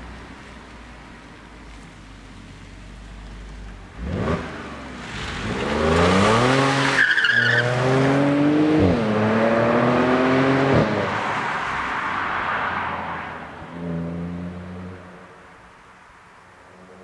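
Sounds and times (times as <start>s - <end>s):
tyre and road noise: 0.0s - 17.0s
car engine accelerating: 1.7s - 15.2s.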